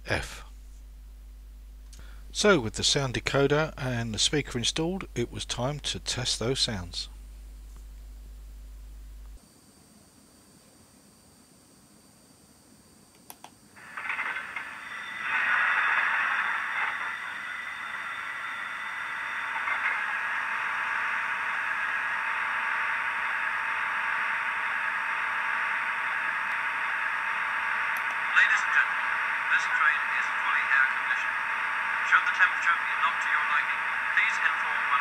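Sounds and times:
faint clicks: 0:13.1 - 0:14.7
model train diesel engine idling: 0:13.8 - 0:35.0.

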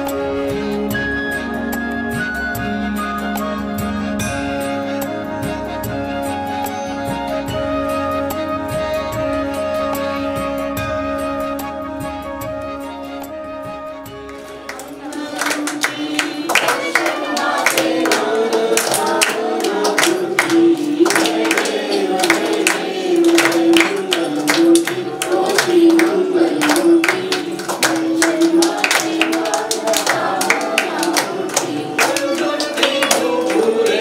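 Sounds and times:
hands clapping to the beat: 0:14.2 - 0:34.0
voices singing devotional song: 0:14.7 - 0:34.0.

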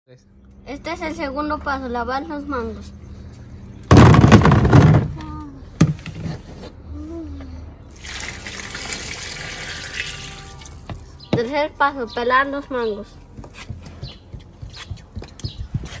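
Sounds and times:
mangoes tumbling into plastic tub: 0:03.9 - 0:05.2
water pouring over mangoes: 0:07.9 - 0:11.1.

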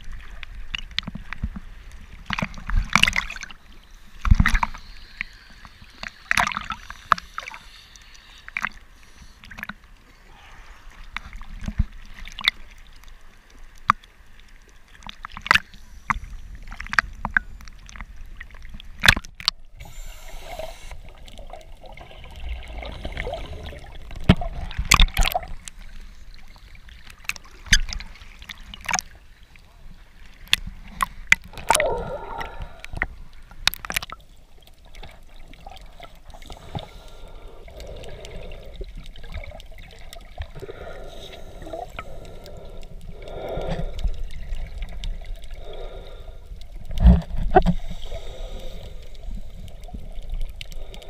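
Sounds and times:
waves splashing against camera: 0:02.1 - 0:12.8, 0:18.9 - 0:29.4, 0:30.2 - 0:51.0
water gurgling: 0:18.9 - 0:29.2, 0:30.4 - 0:51.0.

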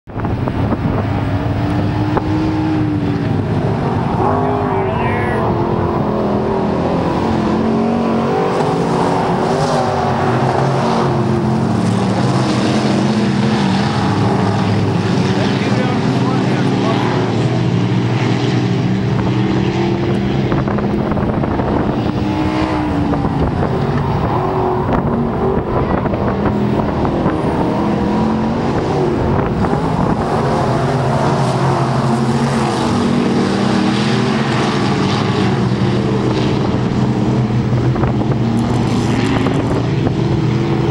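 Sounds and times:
race car engines: 0:00.1 - 0:40.9.

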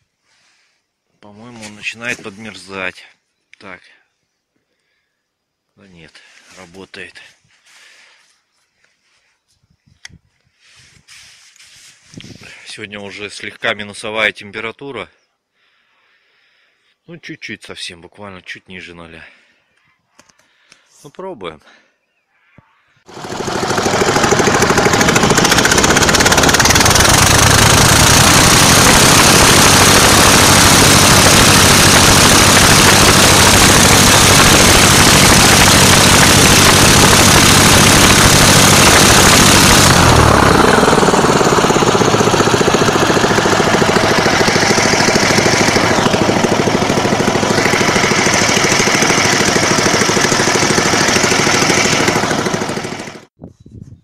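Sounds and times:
engine and propeller at full throttle: 0:23.1 - 0:53.3.

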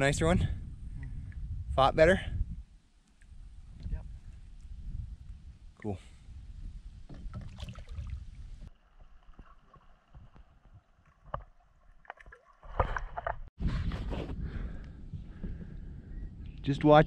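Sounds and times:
water sloshing around a kayak: 0:07.1 - 0:13.5.

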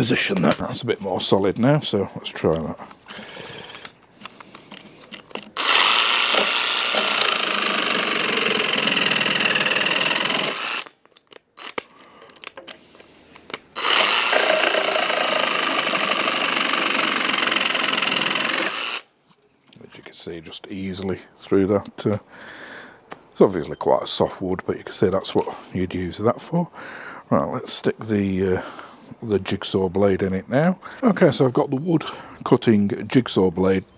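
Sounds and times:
saber saw cutting wood: 0:05.6 - 0:10.9, 0:13.8 - 0:19.1.

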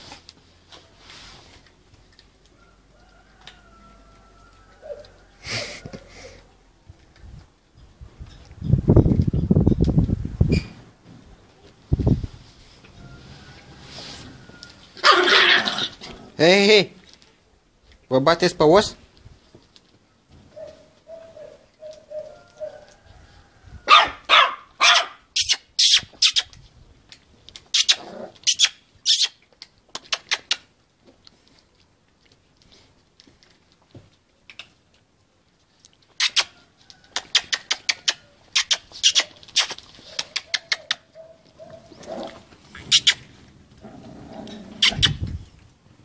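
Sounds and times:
puppies yapping: 0:14.9 - 0:16.2, 0:20.5 - 0:23.0, 0:23.9 - 0:26.3, 0:37.2 - 0:45.2.

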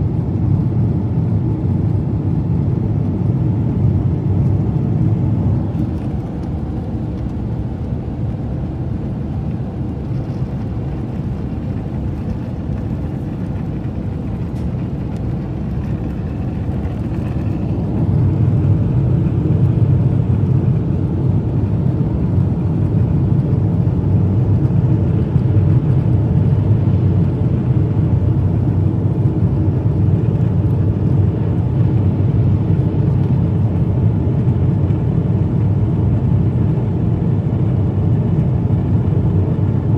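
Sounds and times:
jet airliner cabin noise: 0:00.0 - 0:39.9.

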